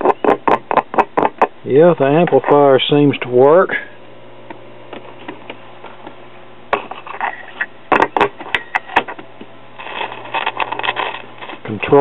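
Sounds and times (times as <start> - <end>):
amplifier hum: 0.0 - 12.0
clicks and crackles: 4.5 - 12.0.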